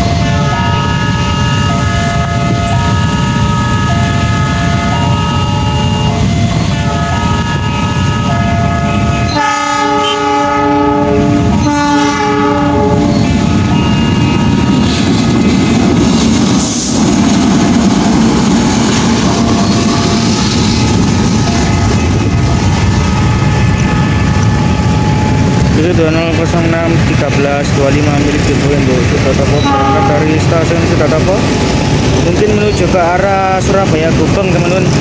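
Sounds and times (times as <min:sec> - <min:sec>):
locomotive air horn blasts: 0:09.3 - 0:13.2, 0:29.6 - 0:30.4.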